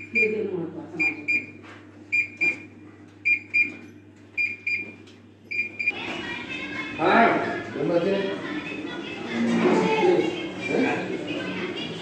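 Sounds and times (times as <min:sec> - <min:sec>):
electronic alarm beeping: 0:01.0 - 0:03.8, 0:04.4 - 0:06.0.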